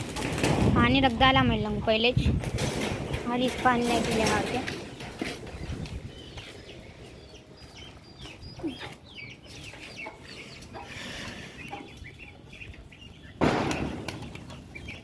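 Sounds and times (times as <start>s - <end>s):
birds calling and chirping: 0.0s - 15.0s.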